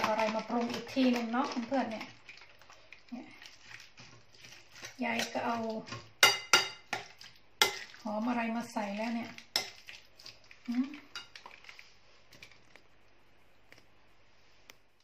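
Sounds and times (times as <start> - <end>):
spoon stirring in bowl: 0.0 - 12.9
spoon clinking against bowl: 6.2 - 7.0.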